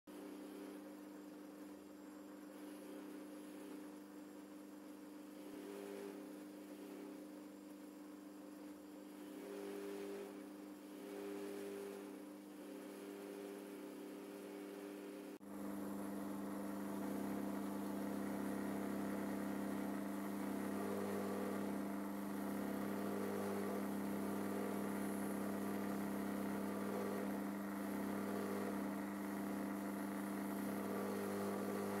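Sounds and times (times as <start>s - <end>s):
bench polisher humming: 11.0s - 32.0s.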